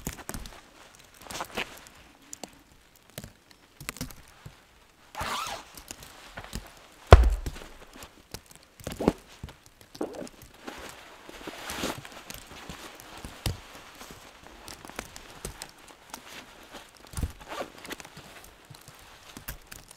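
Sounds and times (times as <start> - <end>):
nylon gear rustling: 5.2 - 8.1
knocks: 7.1 - 7.7
footsteps in snow: 7.1 - 7.8
loud thump: 7.1 - 7.8.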